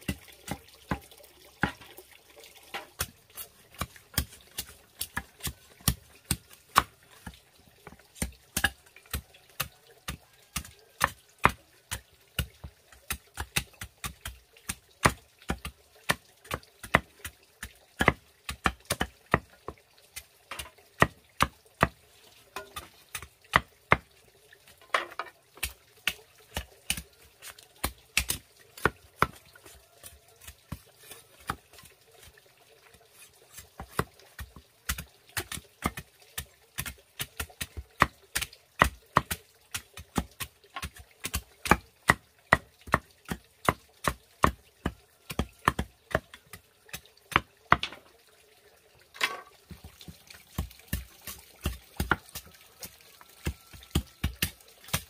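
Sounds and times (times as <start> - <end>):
knives chopping bamboo: 2.8 - 19.5, 24.9 - 32.3, 33.5 - 48.0, 49.2 - 52.5, 53.4 - 55.0.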